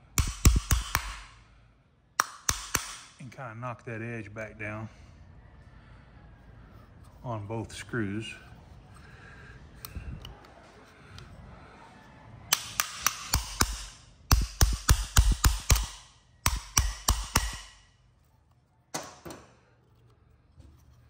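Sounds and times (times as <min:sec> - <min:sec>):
small hammer tapping on metal: 0:00.2 - 0:01.3, 0:02.2 - 0:03.1, 0:12.5 - 0:17.9.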